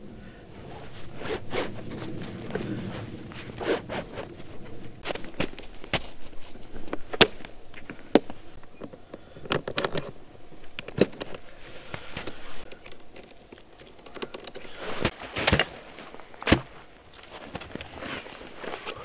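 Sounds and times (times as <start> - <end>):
gear clicks and rustles: 0.0 - 19.0
footsteps crunching in snow: 0.5 - 8.6, 14.8 - 19.0.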